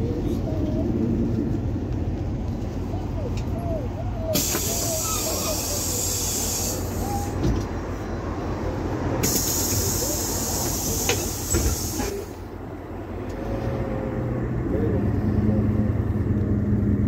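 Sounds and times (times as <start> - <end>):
bus engine rumbling: 0.0 - 17.0
loud steady hiss: 4.4 - 7.4, 9.2 - 12.4.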